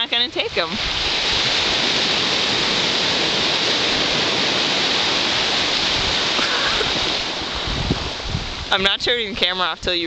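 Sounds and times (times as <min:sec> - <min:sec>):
ocean surf: 0:00.0 - 0:10.0
wind on microphone: 0:00.0 - 0:10.0.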